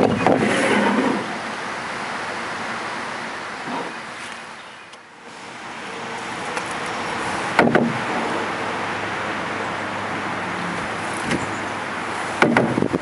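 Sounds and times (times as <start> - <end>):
rushing water: 0.0 - 13.0
wind: 0.0 - 13.0
paddle knocking on canoe: 7.6 - 8.0.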